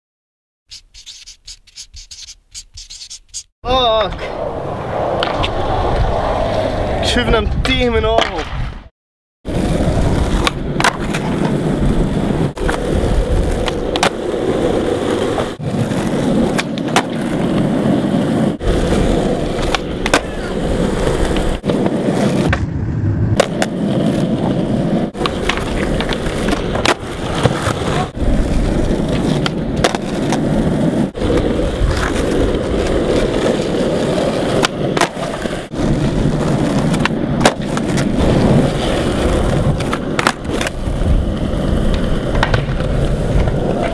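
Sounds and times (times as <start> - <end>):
skateboard wheels rolling on concrete: 3.8 - 43.9
skateboard clacks: 19.6 - 22.6, 25.1 - 28.2, 36.3 - 43.9.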